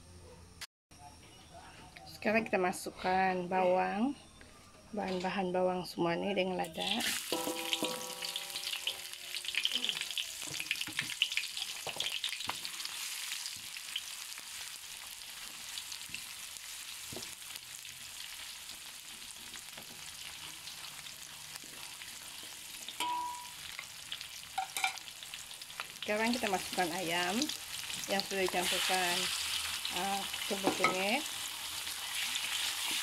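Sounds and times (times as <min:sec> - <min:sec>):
onions sizzling in hot oil: 0:06.7 - 0:33.0
spatula scraping and tapping wok: 0:07.0 - 0:09.1, 0:30.3 - 0:33.0.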